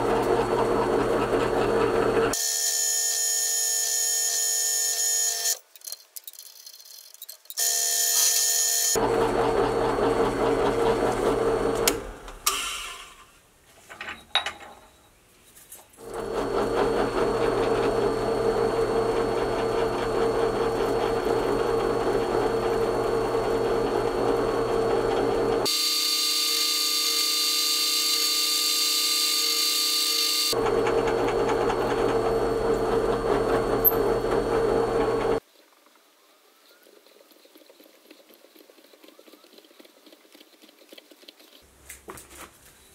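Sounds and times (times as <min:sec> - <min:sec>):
drill press drilling metal: 0:00.0 - 0:02.9, 0:07.6 - 0:13.0, 0:16.0 - 0:35.4.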